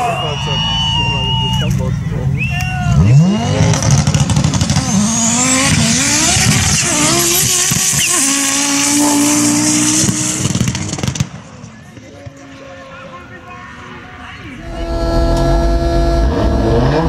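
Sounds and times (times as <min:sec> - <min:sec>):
race car engine accelerating: 0:02.0 - 0:11.4, 0:14.6 - 0:17.0.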